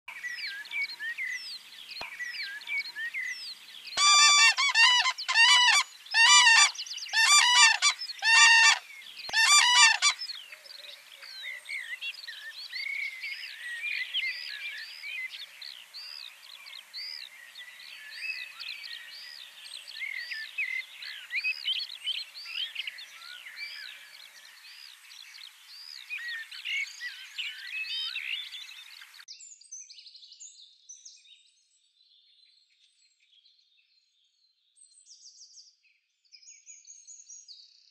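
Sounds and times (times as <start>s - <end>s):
small birds chirping and singing: 0.1s - 34.1s
crane trumpeting calls: 4.0s - 10.2s.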